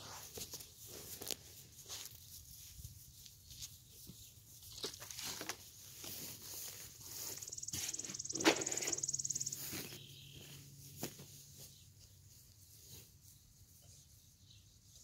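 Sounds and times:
garden work knocks and scuffs: 4.1 - 12.2.

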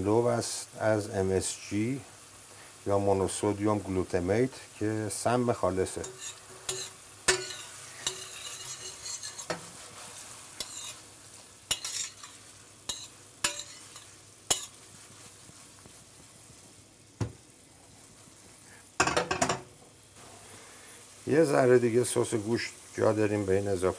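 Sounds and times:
sauce sizzling: 0.0 - 23.9
spoon scraping and clinking on pan: 6.0 - 11.0, 11.7 - 14.9
pan knocking on burner: 6.1 - 8.3, 19.0 - 19.7.

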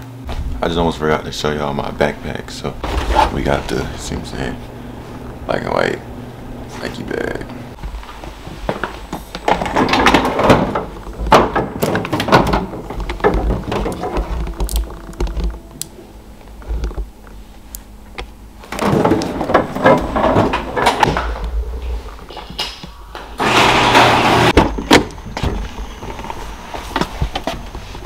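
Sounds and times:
handling knocks and thuds: 8.6 - 15.7, 18.6 - 21.6.

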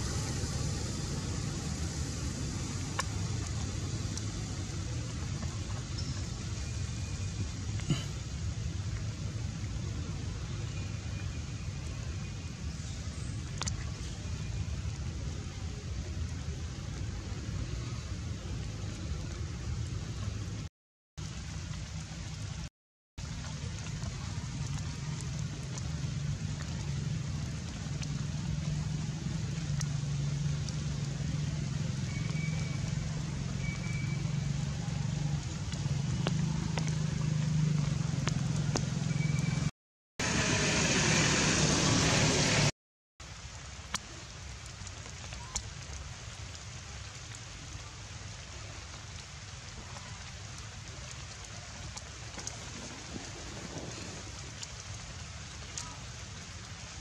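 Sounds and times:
low hum: 0.0 - 8.2
steady rain falling: 0.0 - 57.0
water drips: 0.0 - 57.0.

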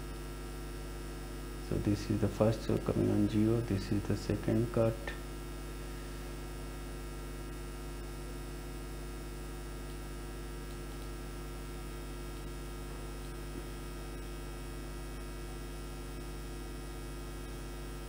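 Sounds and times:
electrical mains hum: 0.0 - 18.0.

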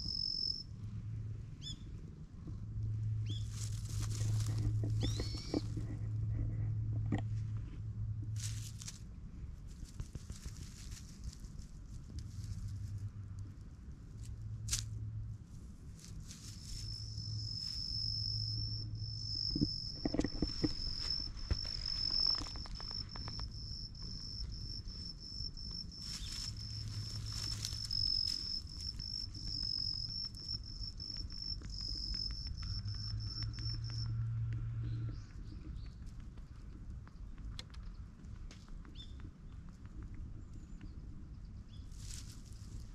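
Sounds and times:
insect high-pitched trill: 0.0 - 0.7, 16.5 - 34.2.

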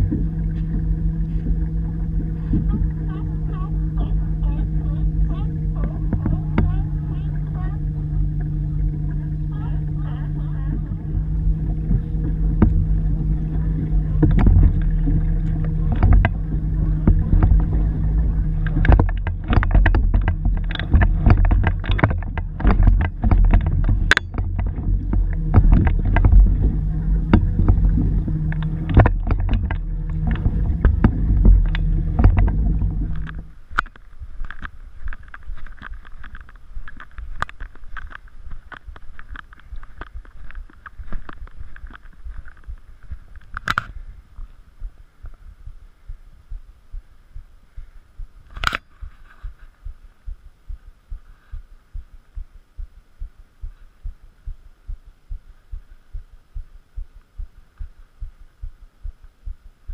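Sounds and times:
paddle knocking on plastic hull: 0.0 - 8.5, 9.9 - 33.5
paddle splashing: 0.0 - 44.2
wind noise: 0.0 - 52.5
low hum: 0.0 - 59.9.

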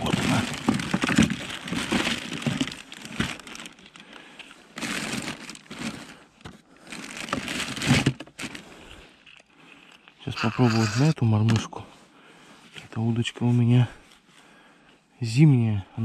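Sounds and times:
newspaper crinkling and rustling: 0.0 - 4.1, 4.7 - 8.8.

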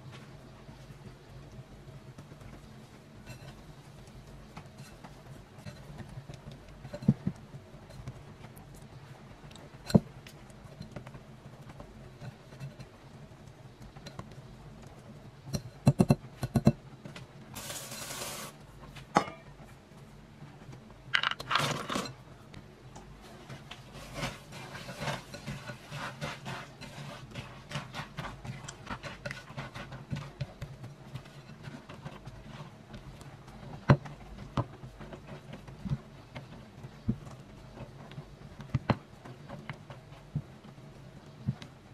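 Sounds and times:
spatula stirring and scraping: 1.7 - 19.4, 21.2 - 22.2, 23.2 - 41.6
granola rattling into bowl: 21.1 - 22.2
whisk stirring batter in glass bowl: 23.5 - 33.8.

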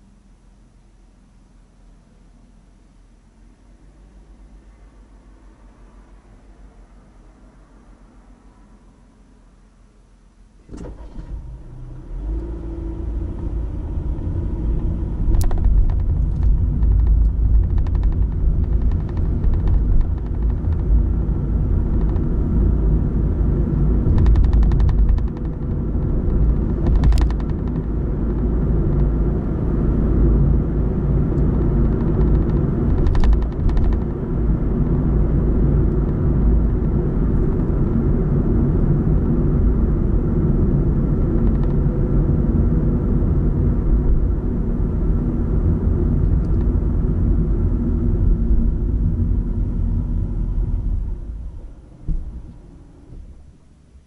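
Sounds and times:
car engine and tyre rumble: 0.0 - 54.0
sharp ticks: 15.3 - 21.0, 24.1 - 29.1, 31.4 - 34.2.

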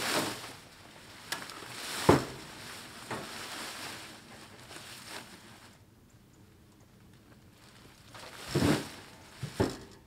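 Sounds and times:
corn stalks rustling: 0.0 - 5.8, 7.6 - 9.8.

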